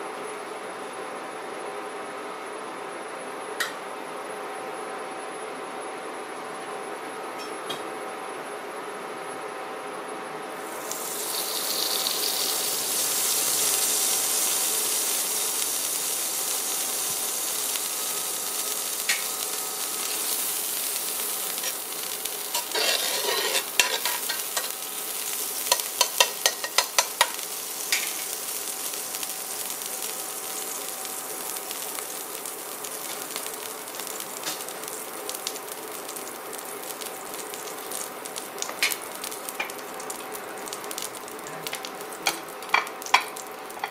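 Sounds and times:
butter sizzling in a skillet: 10.6s - 43.9s
metal tongs clicking on a pan: 25.7s - 28.1s.

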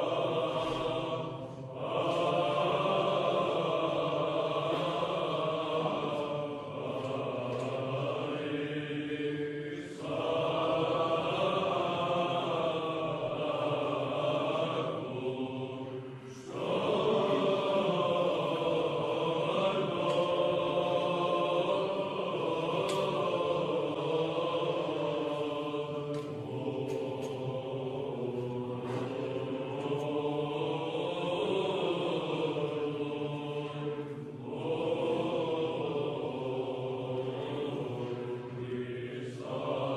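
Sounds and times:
voices chanting slow melody: 0.0s - 39.9s.

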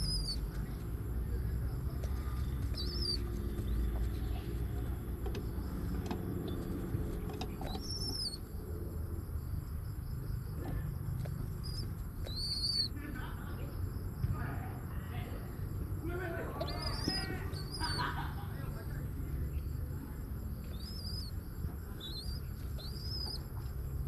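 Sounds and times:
small bird chirping: 0.0s - 14.2s, 14.8s - 24.0s
pigeon cooing: 16.6s - 18.8s, 20.5s - 24.0s.

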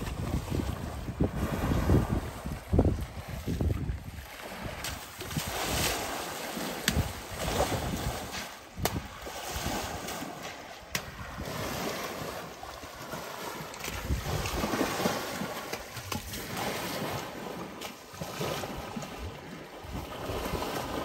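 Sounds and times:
wind buffeting microphone: 0.0s - 6.1s, 6.8s - 10.0s, 13.8s - 15.2s
elephant splashing water: 0.0s - 21.0s.

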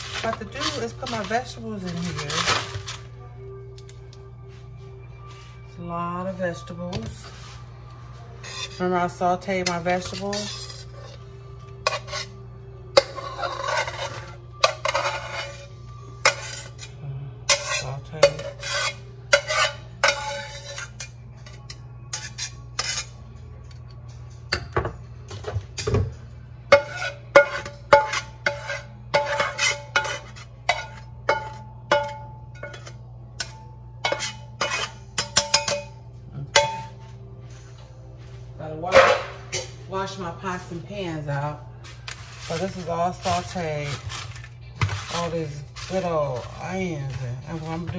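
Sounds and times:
metal spatula scraping a pan: 0.0s - 3.0s, 7.0s - 23.3s, 26.7s - 37.1s, 42.0s - 47.9s.

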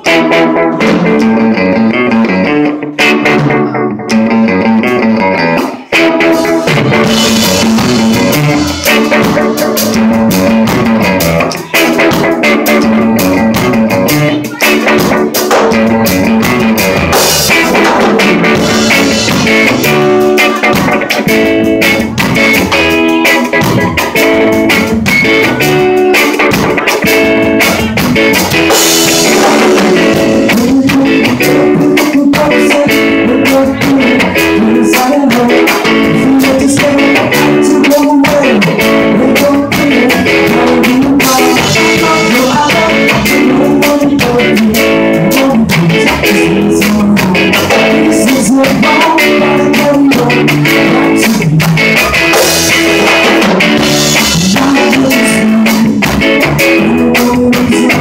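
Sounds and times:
drum kit playing: 0.0s - 58.0s
electric guitar playing: 0.0s - 58.0s.

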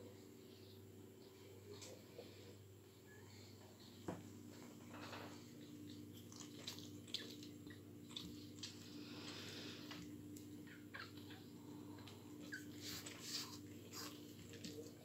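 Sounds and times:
steady low hum: 0.0s - 15.0s
puppies squeaking: 12.4s - 14.1s.

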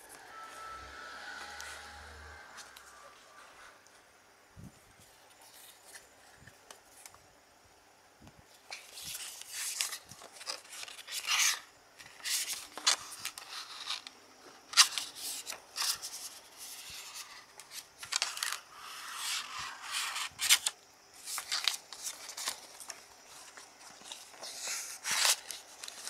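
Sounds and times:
paper pages rustling: 8.6s - 14.1s, 14.7s - 26.0s.

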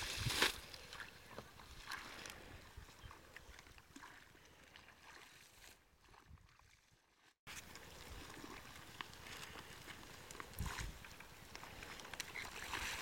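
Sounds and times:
rustling of leaves: 0.0s - 1.3s, 7.5s - 13.0s.

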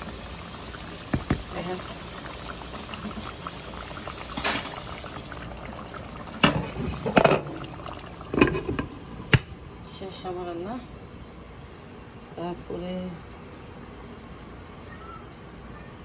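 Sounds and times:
curry bubbling in a pan: 0.0s - 9.1s.

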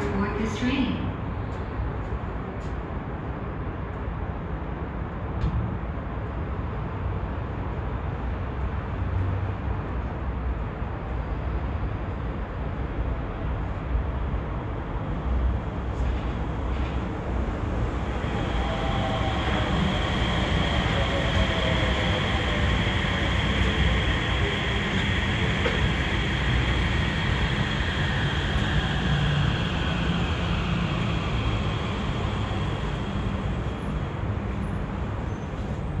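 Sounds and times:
train rumbling past: 0.0s - 36.0s.

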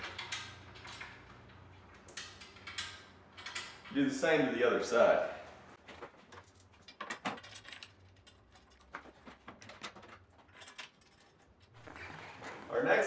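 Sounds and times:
metallic clicks of bolts and nuts: 0.0s - 4.0s, 6.4s - 11.8s.

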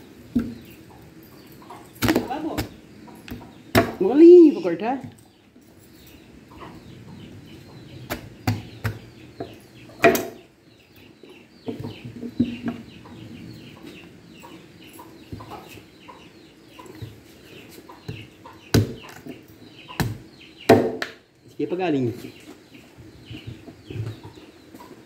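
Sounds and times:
chickens clucking: 0.0s - 20.8s, 21.7s - 25.0s
sharp knocks: 20.0s - 21.2s.

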